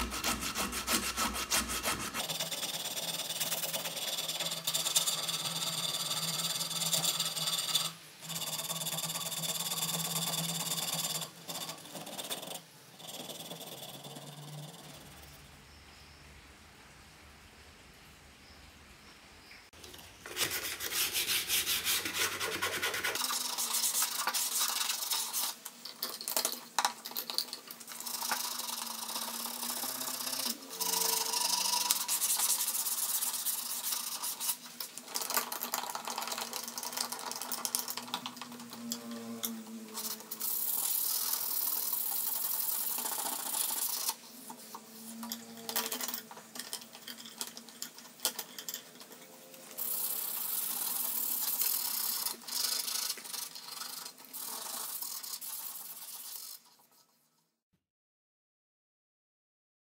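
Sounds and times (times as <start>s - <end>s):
sandpaper rubbing on wood: 0.0s - 7.9s, 20.2s - 25.6s, 28.1s - 34.7s, 49.8s - 56.8s.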